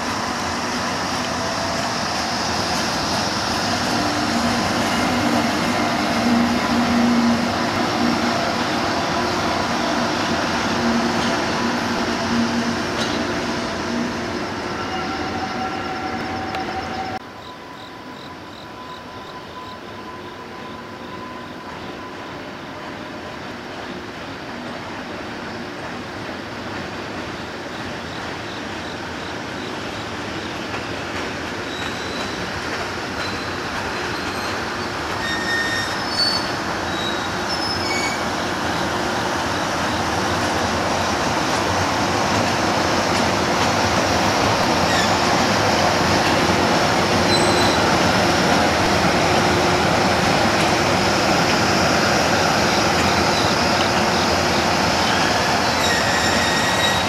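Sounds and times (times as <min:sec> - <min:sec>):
electric locomotive rolling rumble: 0:00.0 - 0:57.0
wheels squealing: 0:33.2 - 0:38.3, 0:44.8 - 0:45.3, 0:47.2 - 0:48.0, 0:55.0 - 0:57.0.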